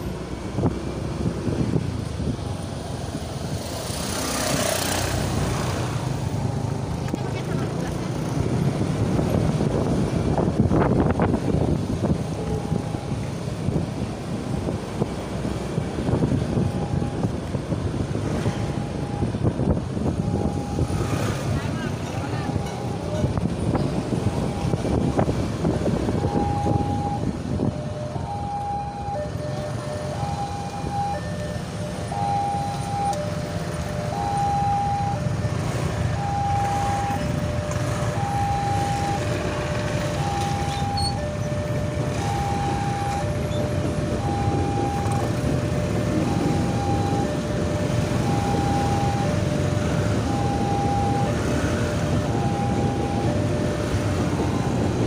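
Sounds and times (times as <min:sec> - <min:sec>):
motorcycle and truck traffic: 0:00.0 - 0:55.0
two-tone level-crossing alarm: 0:20.2 - 0:21.1, 0:26.2 - 0:35.6, 0:36.2 - 0:55.0.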